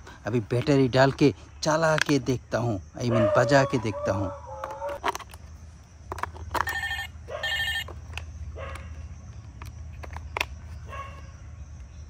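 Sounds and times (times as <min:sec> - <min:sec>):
toy telephone electronic ringtone: 0:06.5 - 0:08.0.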